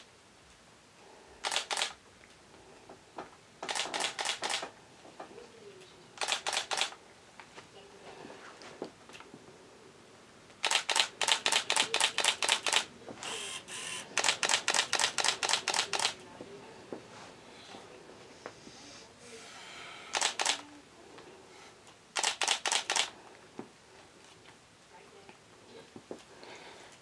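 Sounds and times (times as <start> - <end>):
camera shutter clicking rapidly: 1.4 - 2.0, 3.6 - 4.7, 6.2 - 7.0, 10.6 - 16.2, 20.1 - 20.6, 22.1 - 23.1.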